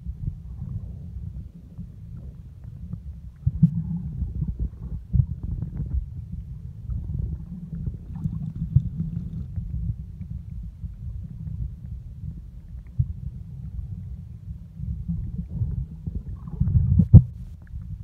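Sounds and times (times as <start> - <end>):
underwater water rumble: 0.0 - 18.0.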